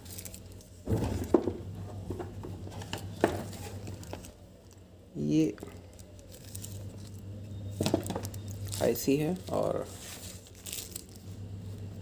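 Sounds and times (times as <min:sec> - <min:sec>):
plastic bags rustling: 0:00.0 - 0:04.8, 0:05.6 - 0:12.0
plastic box clicks and knocks: 0:07.8 - 0:08.3.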